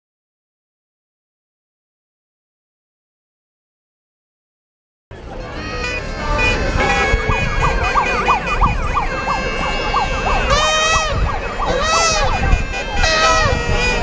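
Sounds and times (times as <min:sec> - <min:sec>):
sirens yelping: 0:05.2 - 0:14.0
siren wailing: 0:05.4 - 0:14.0
steady siren tone: 0:05.4 - 0:14.0.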